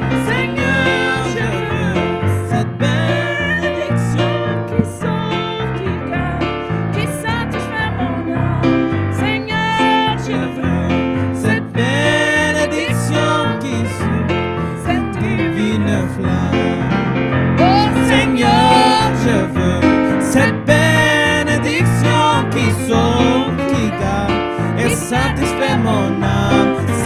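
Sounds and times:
keyboard gospel accompaniment: 0.0 - 27.0
woman singing: 0.2 - 4.2, 4.8 - 10.8, 17.6 - 19.6.

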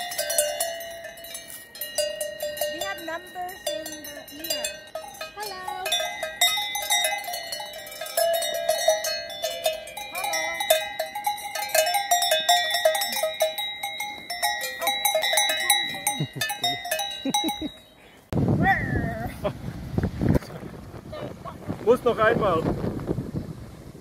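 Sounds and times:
cowbells clanking: 0.0 - 18.0.

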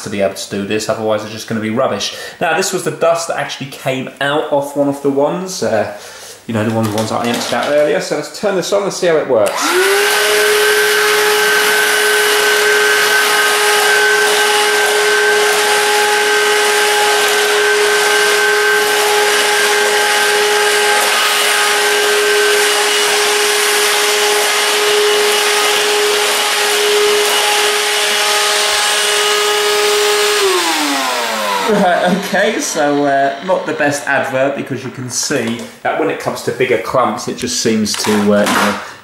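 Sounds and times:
vacuum cleaner motor whine: 9.5 - 34.6.

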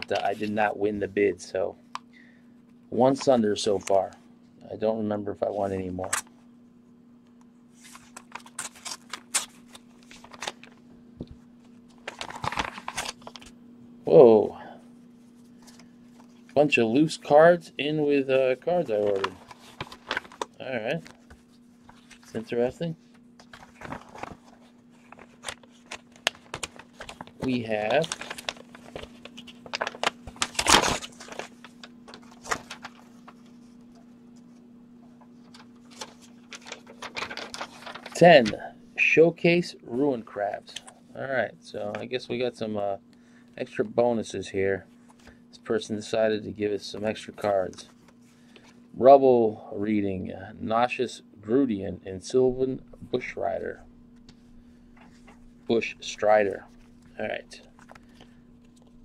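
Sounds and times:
paper envelopes rustling: 0.0 - 0.8, 7.8 - 13.5, 15.2 - 38.7, 52.9 - 59.0
faint hum: 0.0 - 59.0.

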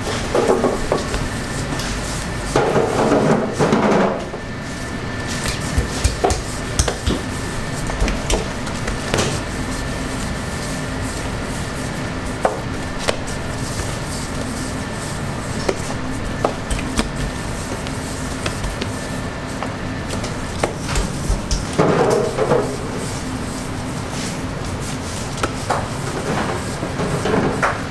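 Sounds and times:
steady hum: 0.0 - 27.9.

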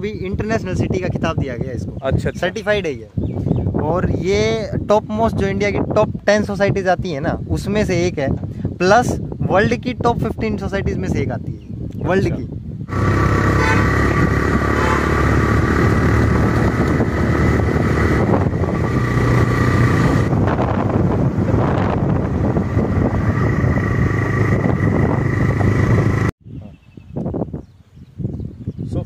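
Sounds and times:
vehicle road noise: 12.9 - 26.3.

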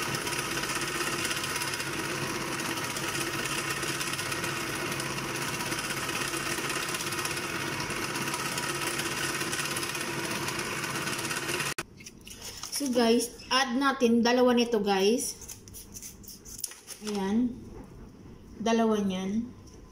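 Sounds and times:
food processor motor running: 0.0 - 11.8.

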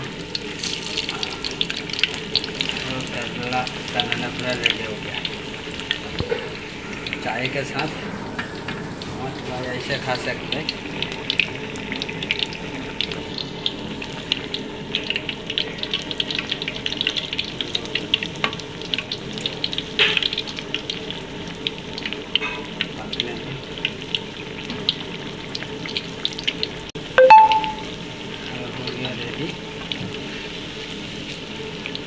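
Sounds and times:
fritters deep-frying in oil: 0.0 - 32.0.

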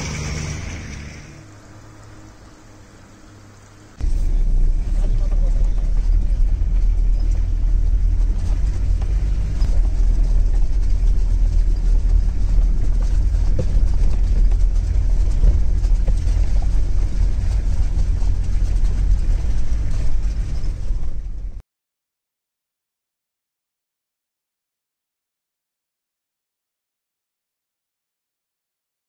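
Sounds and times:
vehicle engine and tyres rumbling: 0.0 - 21.6.

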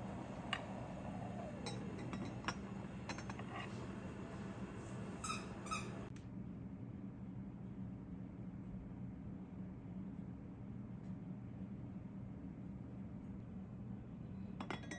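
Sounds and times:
steady low hum: 0.0 - 14.6
ceramic lid clinking on pot: 1.5 - 3.7, 14.6 - 14.9.

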